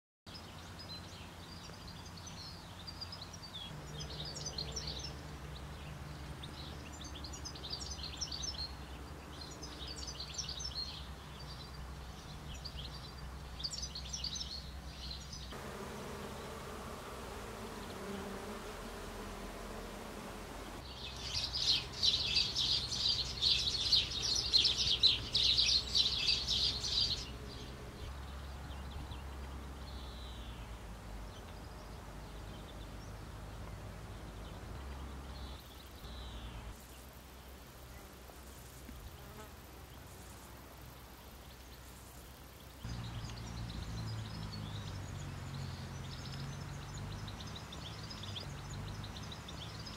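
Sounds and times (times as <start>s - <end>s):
birds singing: 0.3s - 15.6s, 19.7s - 37.1s, 40.9s - 49.9s
insects buzzing: 15.3s - 49.9s.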